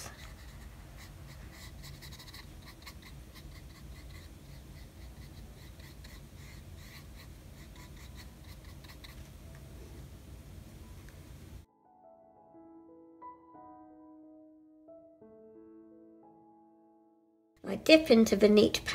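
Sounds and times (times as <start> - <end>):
paintbrush scraping on paper: 0.0 - 9.3.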